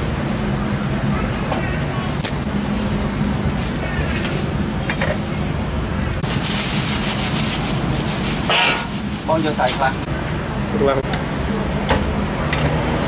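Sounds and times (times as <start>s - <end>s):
plastic bag crinkling: 6.2s - 10.1s.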